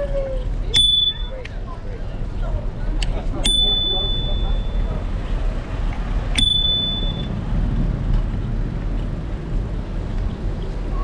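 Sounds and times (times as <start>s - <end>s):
wind and road noise: 0.0s - 11.0s
bicycle bell ding: 0.7s - 1.4s, 3.4s - 4.9s, 6.4s - 7.3s.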